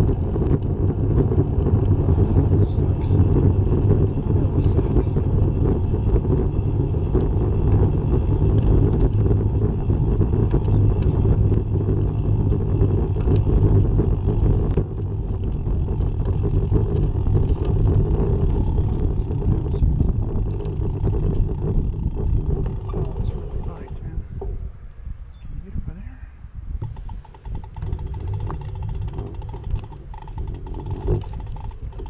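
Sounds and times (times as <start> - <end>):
wind rushing over microphone: 0.0 - 32.0
faint ticks: 26.8 - 32.0.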